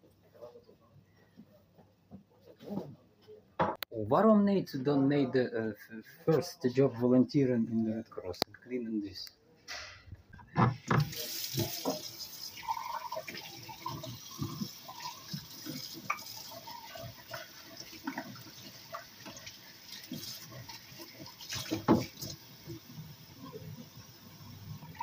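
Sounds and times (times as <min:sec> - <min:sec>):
tap running into sink: 0:10.9 - 0:16.4, 0:21.5 - 0:22.4.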